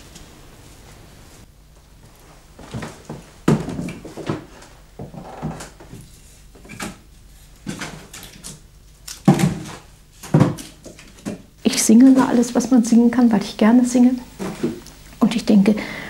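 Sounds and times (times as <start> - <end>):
objects knocking and clunking: 9.2 - 11.5.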